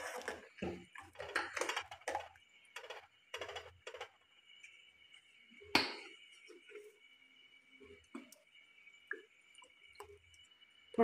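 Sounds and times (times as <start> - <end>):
ladle scraping pot: 0.0 - 4.0.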